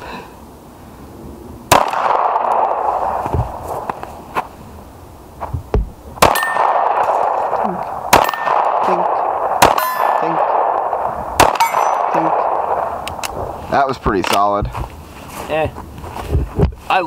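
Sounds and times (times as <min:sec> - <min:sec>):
pistol shots: 0:01.7 - 0:03.6, 0:06.2 - 0:13.5
steel targets clanging: 0:06.2 - 0:07.2, 0:09.6 - 0:10.3, 0:11.4 - 0:12.4.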